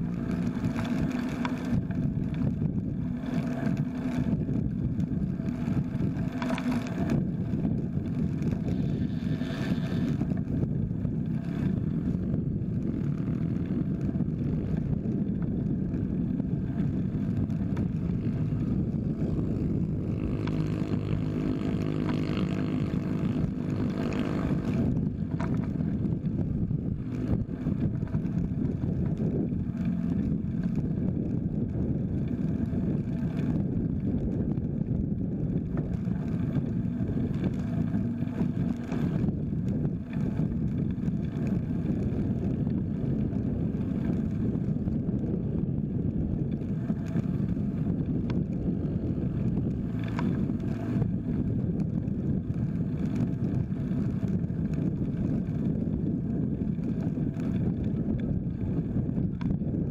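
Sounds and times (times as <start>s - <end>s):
vehicle engine passing close: 0.0s - 34.2s
passing traffic: 0.0s - 59.9s
road rumble: 0.0s - 59.9s
wind buffeting microphone: 0.0s - 59.9s.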